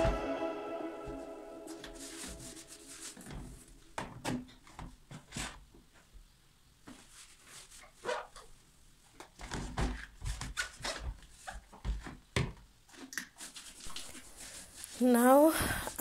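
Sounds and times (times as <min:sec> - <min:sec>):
background music: 0:00.0 - 0:03.2.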